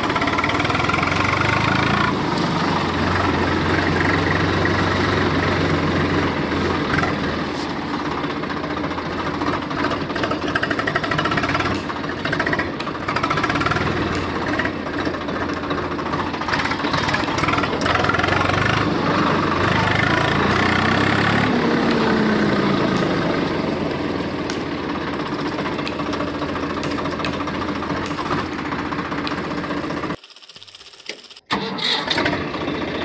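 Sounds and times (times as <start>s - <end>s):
toy electric motor whirring: 30.2s - 31.6s.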